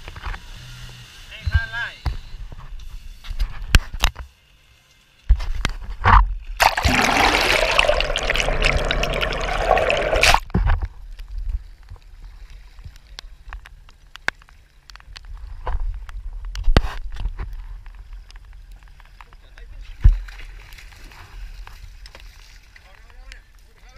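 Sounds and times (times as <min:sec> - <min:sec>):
seawater rushing and gurgling: 0:06.6 - 0:10.4
low underwater rumble: 0:06.7 - 0:10.4.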